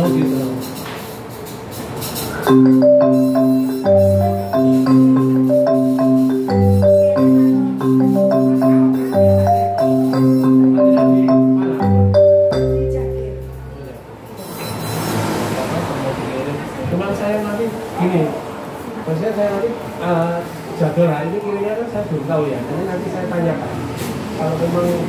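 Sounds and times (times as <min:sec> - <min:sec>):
synthesizer mallet-like melody: 0:00.0 - 0:00.7, 0:02.4 - 0:14.2.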